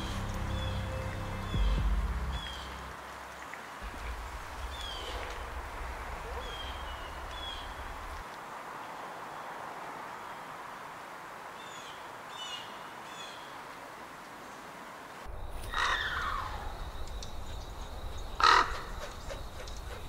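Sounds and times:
crow cawing: 0:15.7 - 0:16.8, 0:18.4 - 0:19.4.

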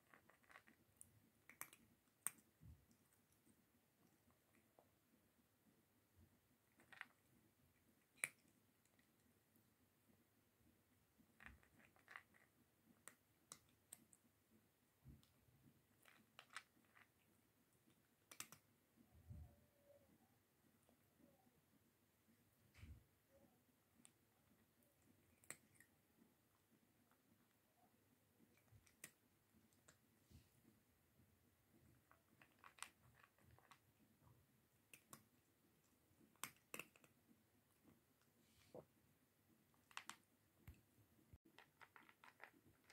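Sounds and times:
cat crunching dry kibble: 0:00.0 - 0:03.0, 0:06.6 - 0:07.3, 0:11.3 - 0:14.1, 0:15.9 - 0:17.2, 0:18.2 - 0:18.6, 0:28.5 - 0:29.2, 0:31.9 - 0:33.9, 0:36.3 - 0:37.2, 0:39.7 - 0:40.2, 0:41.5 - 0:42.9.

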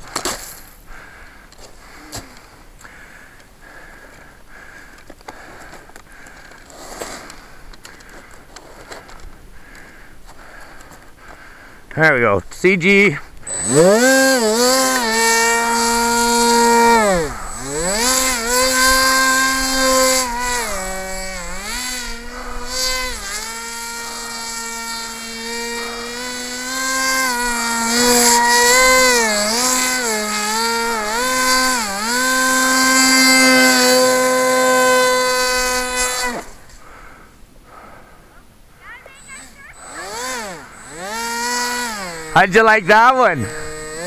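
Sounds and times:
propeller motor whining: 0:12.8 - 0:36.6, 0:38.8 - 0:44.0.

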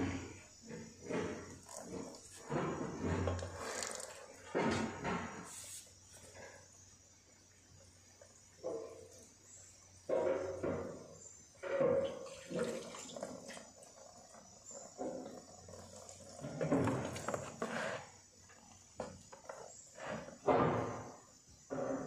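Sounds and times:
liquid pouring and splashing: 0:12.1 - 0:14.1.

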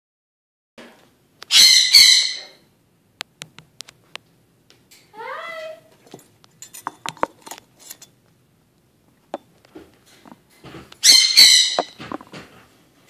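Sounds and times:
parrot chirps: 0:01.4 - 0:02.6, 0:11.0 - 0:12.0
parrot harsh squawk: 0:01.5 - 0:02.6, 0:11.0 - 0:12.0.

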